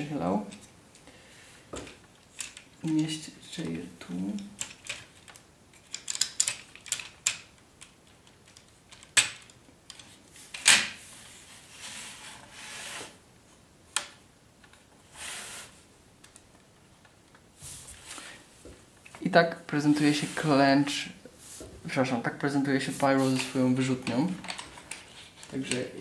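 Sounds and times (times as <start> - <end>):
plastic toy parts clicking: 4.6 - 10.1.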